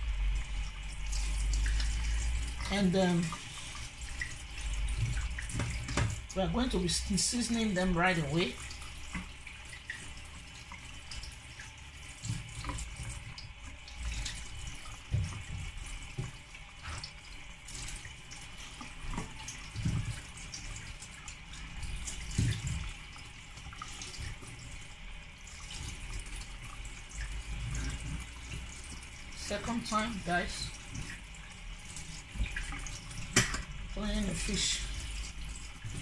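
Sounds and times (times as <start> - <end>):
tap running into sink: 4.9 - 6.3, 12.2 - 17.2, 32.3 - 33.8.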